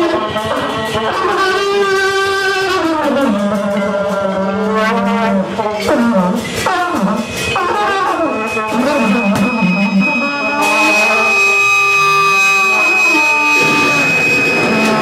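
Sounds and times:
bending pitched electronic tones: 0:00.0 - 0:15.0
steady high whine: 0:05.4 - 0:15.0.

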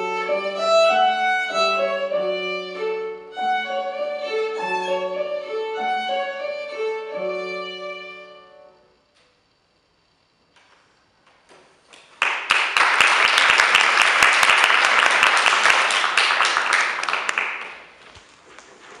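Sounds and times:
small audience applauding: 0:11.9 - 0:18.2.

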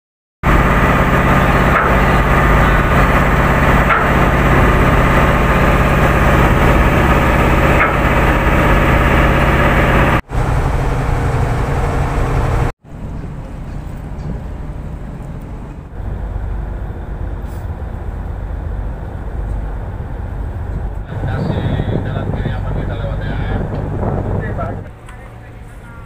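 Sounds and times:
boat diesel engine droning: 0:00.4 - 0:26.0.

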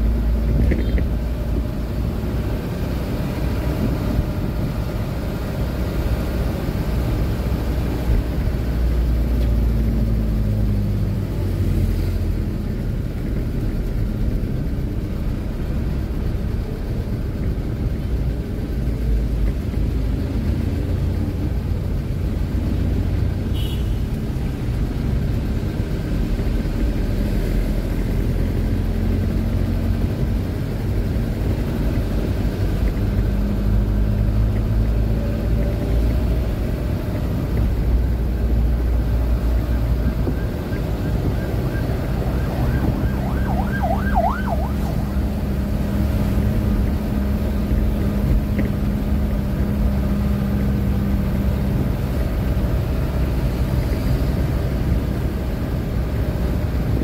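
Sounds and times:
truck engine and road rumble: 0:00.0 - 0:57.0
faint siren: 0:38.9 - 0:46.6.

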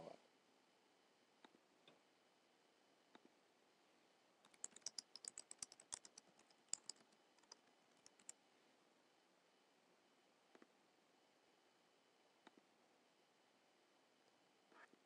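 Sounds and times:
keyboard typing clicks: 0:04.4 - 0:08.4.

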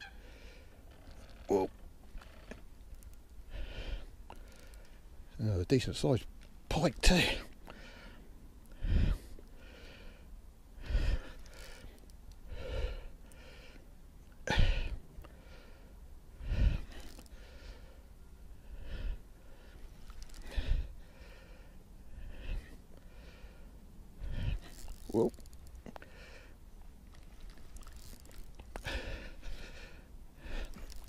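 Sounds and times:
man breathing heavily: 0:03.5 - 0:05.1, 0:07.2 - 0:26.6, 0:27.7 - 0:31.0.

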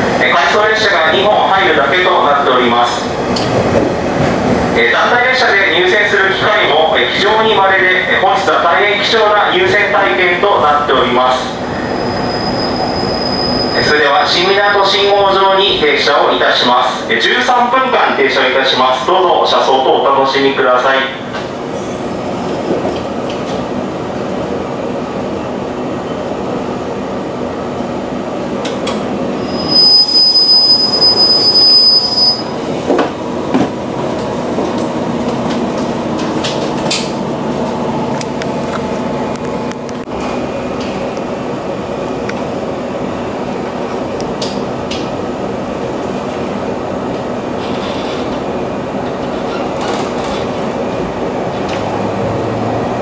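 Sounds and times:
train wheels rumbling on rail: 0:00.0 - 0:19.7, 0:20.6 - 0:53.0
high-pitched wheel squeal: 0:11.8 - 0:14.0, 0:29.4 - 0:32.6.

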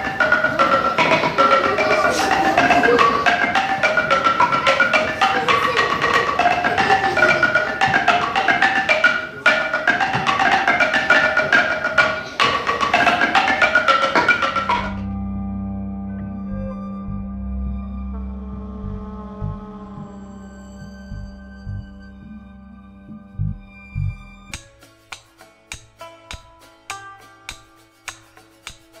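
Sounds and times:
struck pitched notes melody: 0:00.0 - 0:29.0
steady held tone: 0:13.8 - 0:24.7.

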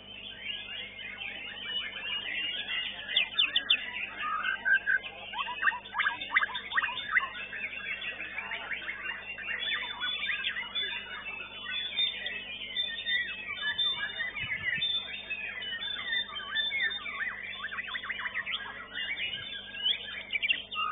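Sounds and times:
songbird singing whistles and trills: 0:00.0 - 0:20.9.

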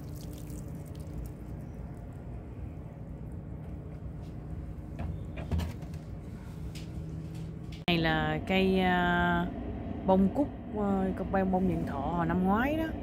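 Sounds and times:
garden hose spraying water: 0:00.0 - 0:01.6
low background hum: 0:00.0 - 0:13.0.

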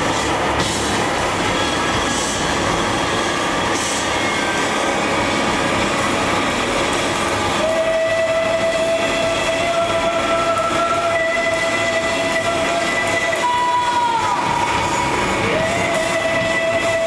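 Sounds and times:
distorted guitar and keyboard drone: 0:00.0 - 0:17.0
long high held note: 0:03.8 - 0:17.0.

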